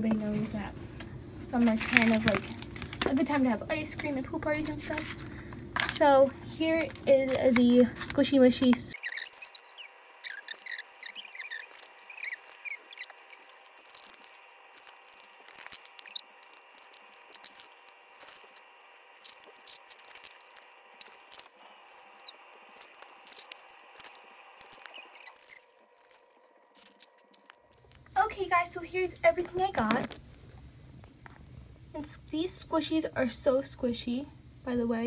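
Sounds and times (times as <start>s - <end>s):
steady hum: 0.0s - 35.0s
plastic packs crackling and tearing: 1.5s - 3.4s, 4.6s - 28.2s
squeaky chirps: 8.9s - 27.9s.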